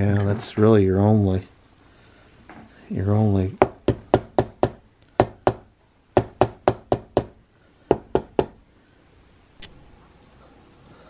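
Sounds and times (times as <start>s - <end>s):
chisel tapping into wood: 3.6s - 5.6s, 6.2s - 8.6s.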